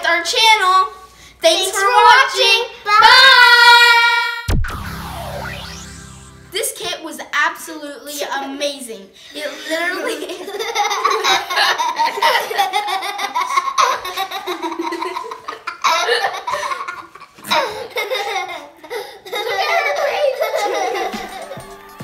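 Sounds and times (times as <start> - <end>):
children laughing and giggling: 9.3 - 22.0.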